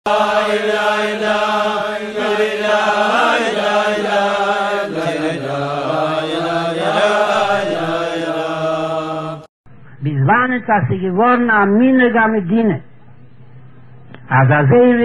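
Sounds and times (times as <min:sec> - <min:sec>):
slow chanted singing: 0:00.1 - 0:10.0.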